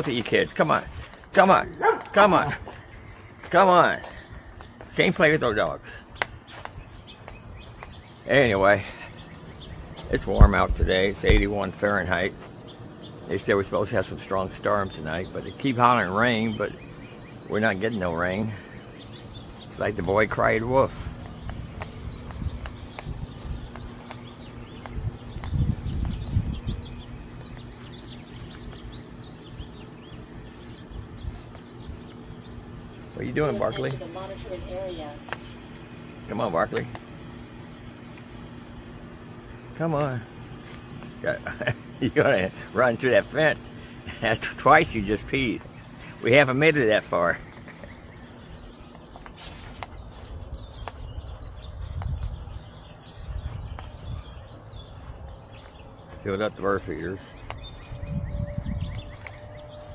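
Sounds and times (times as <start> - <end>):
small birds chirping: 0.0 - 59.9
low rumble on microphone: 19.4 - 33.2, 47.3 - 59.9
dull low thumps: 21.0 - 29.7
footsteps through grass: 46.9 - 52.6.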